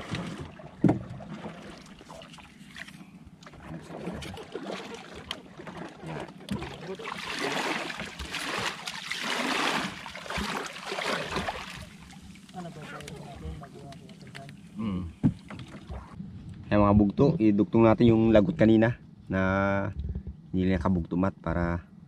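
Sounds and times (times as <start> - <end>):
water splashing around boat: 0.0 - 16.2.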